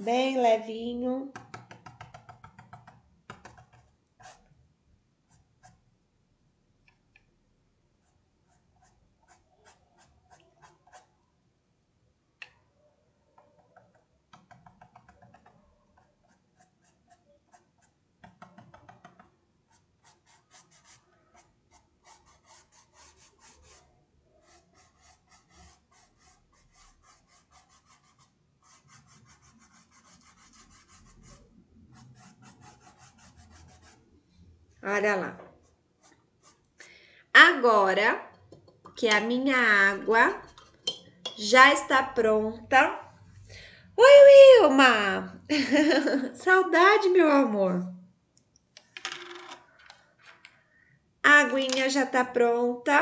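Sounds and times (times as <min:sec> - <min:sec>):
paintbrush rubbing on fabric: 0:19.7 - 0:34.0, 0:35.5 - 0:36.6.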